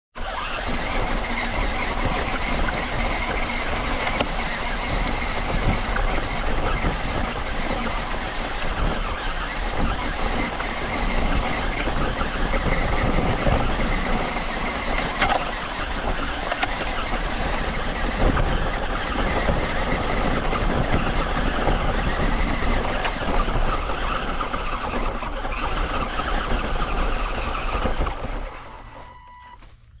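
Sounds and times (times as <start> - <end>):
rc car motor whine: 0.2 - 30.0
dry leaves crunching under tyres: 20.6 - 30.0.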